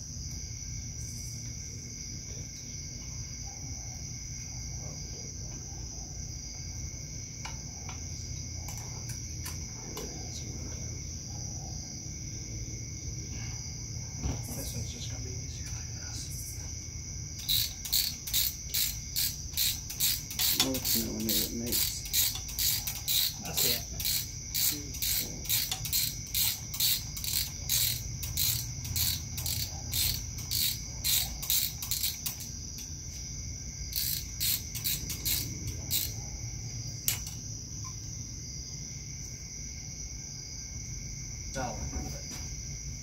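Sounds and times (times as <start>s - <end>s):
ratchet wrench clicking: 17.4s - 32.9s, 33.9s - 36.2s, 37.0s - 37.4s.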